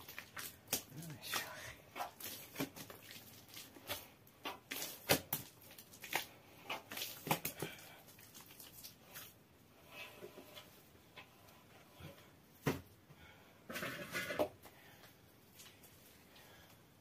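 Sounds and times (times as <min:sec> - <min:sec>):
hands kneading bread dough: 0:00.0 - 0:17.0.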